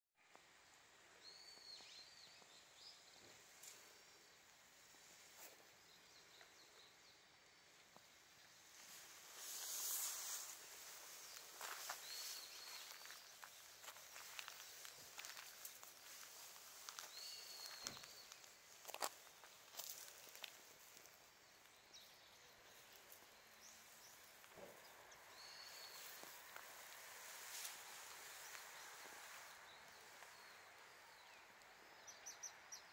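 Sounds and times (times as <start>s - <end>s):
low steady hiss: 0.2s - 32.9s
small birds chirping: 1.1s - 32.9s
soft rustle: 8.0s - 31.1s.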